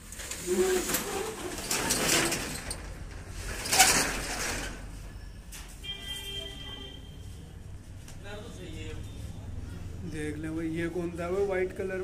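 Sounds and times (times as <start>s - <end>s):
rattling and scraping: 0.2s - 4.9s.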